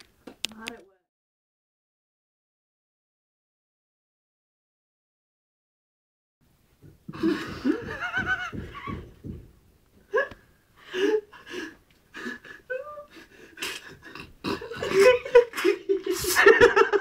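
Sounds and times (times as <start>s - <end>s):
person laughing: 7.1s - 9.2s, 10.1s - 11.4s, 12.2s - 17.0s.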